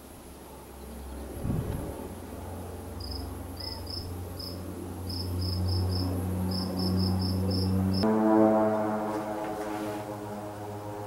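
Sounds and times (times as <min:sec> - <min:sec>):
turboprop plane drone: 0:00.8 - 0:11.0
insect chirping: 0:03.0 - 0:08.0.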